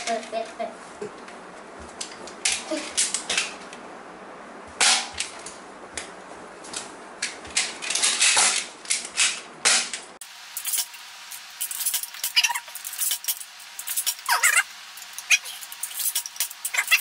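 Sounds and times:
suction darts smacking a wall: 4.8 - 5.4, 8.0 - 10.0.

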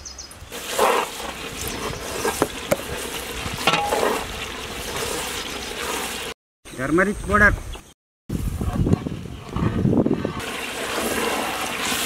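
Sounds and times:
masala sizzling in a pot: 0.5 - 6.4, 8.3 - 12.0
metal ladle scraping a pot: 0.6 - 6.4, 8.6 - 12.0.

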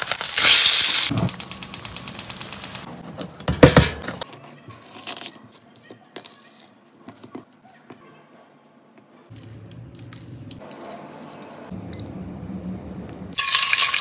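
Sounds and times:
fish sizzling in a pan: 0.0 - 1.1, 13.4 - 14.0.

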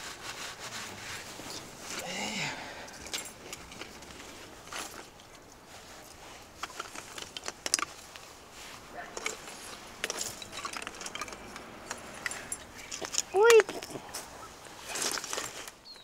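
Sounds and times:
baubles clicking and clinking: 9.1 - 14.3.

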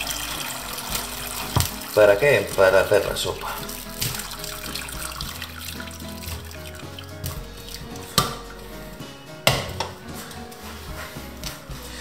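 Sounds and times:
liquid pouring and dripping into a pot: 0.0 - 8.8
background music: 0.0 - 12.0
kitchenware knocks: 6.2 - 11.2.

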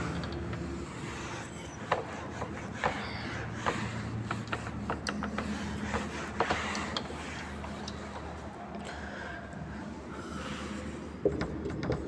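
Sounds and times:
duster scraping on whiteboard: 1.9 - 8.0.

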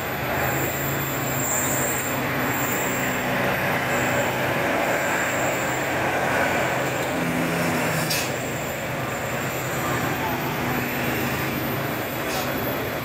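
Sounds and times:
bus diesel engine humming: 0.0 - 13.0
road noise: 0.0 - 13.0.

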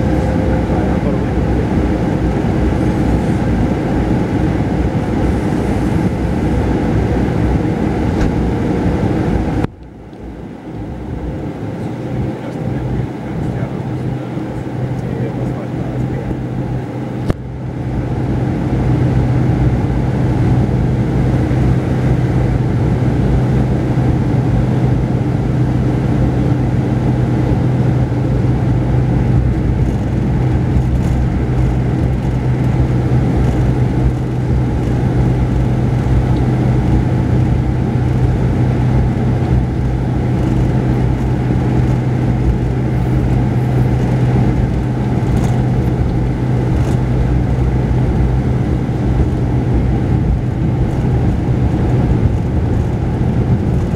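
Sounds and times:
diesel bus engine humming: 0.0 - 53.9
tyre and road noise: 20.6 - 53.9.

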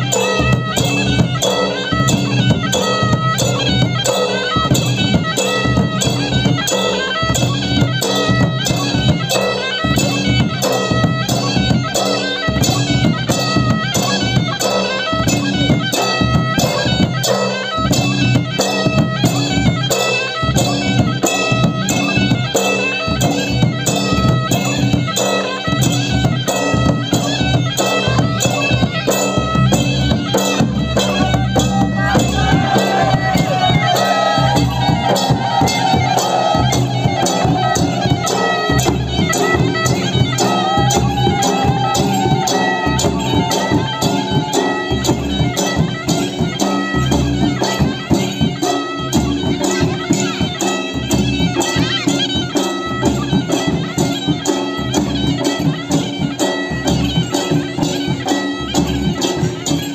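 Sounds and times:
drums beating fast: 0.0 - 59.9
reedy wind instrument melody: 0.0 - 59.9
high wavering melody: 30.6 - 47.5.

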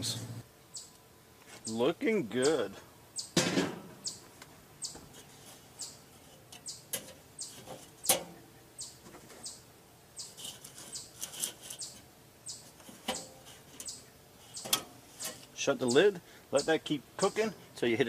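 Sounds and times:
small birds chirping: 0.0 - 3.4, 4.0 - 18.0
metal grate clanking: 6.5 - 8.4.

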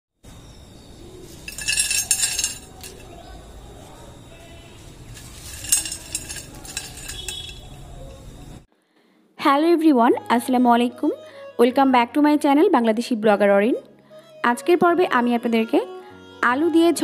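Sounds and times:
bowl clattering: 1.3 - 3.3, 5.1 - 8.2
skimmer scraping a plate: 5.1 - 7.7.

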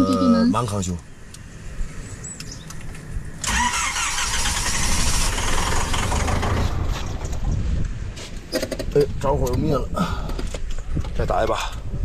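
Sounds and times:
car engine starting and dying: 3.4 - 7.4.

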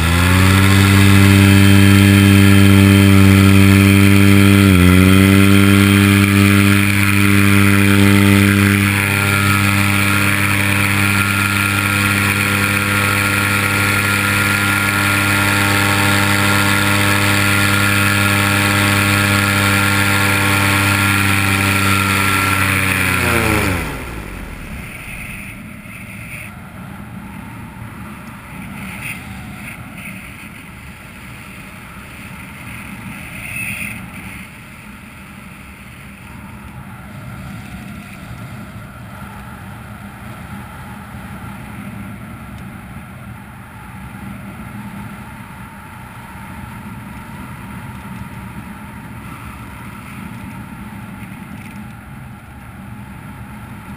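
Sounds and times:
paramotor engine running: 0.0 - 26.5
engine spinning down: 0.0 - 30.3.

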